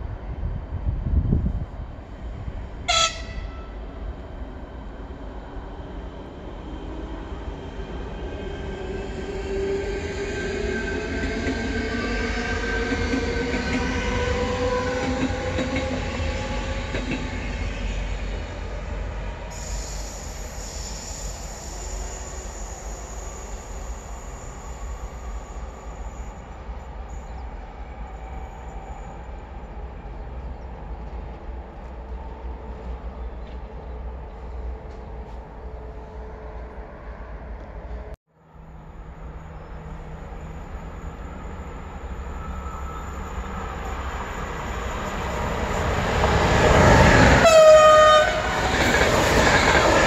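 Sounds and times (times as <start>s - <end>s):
electric train passing: 0.0s - 50.0s
high squeal: 19.5s - 29.5s, 38.9s - 45.9s.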